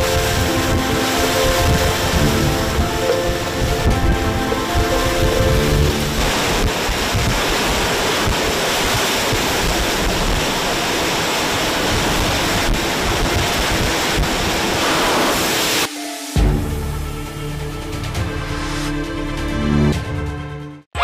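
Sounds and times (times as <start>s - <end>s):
wind buffeting microphone: 0.0s - 15.2s
storm wind roaring: 0.0s - 16.9s
driving rain: 0.0s - 18.2s.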